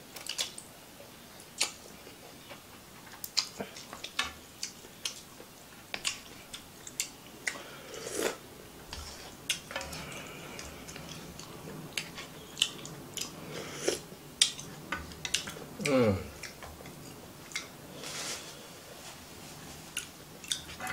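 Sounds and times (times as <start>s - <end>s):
wet mouth chewing: 6.0s - 17.7s, 20.0s - 20.7s
slurping broth: 7.9s - 8.4s, 13.5s - 14.0s.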